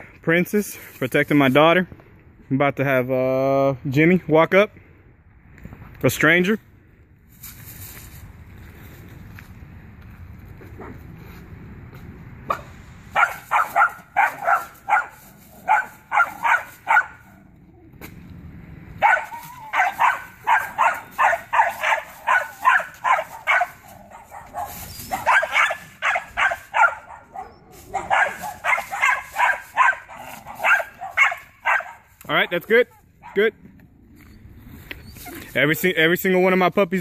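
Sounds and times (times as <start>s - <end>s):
puppy barking high-pitched: 13.1s - 17.3s, 19.0s - 32.1s.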